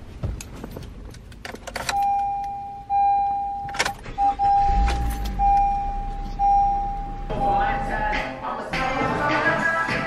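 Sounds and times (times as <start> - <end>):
keys or seatbelt clicks and rattles: 0.3 - 2.6, 3.6 - 4.1
car warning chime: 1.9 - 8.2.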